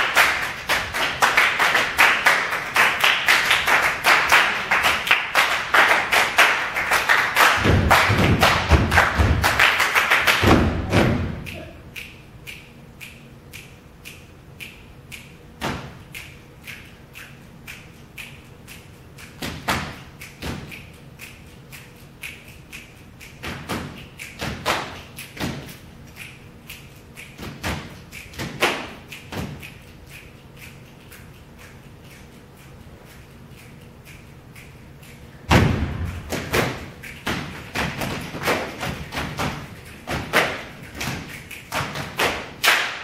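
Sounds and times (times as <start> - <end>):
stomps and claps: 0.0 - 12.1, 15.6 - 16.8, 23.4 - 25.8, 27.3 - 29.8, 34.6 - 43.0
loud thumps: 7.6 - 9.5, 10.4 - 11.5, 35.5 - 38.2.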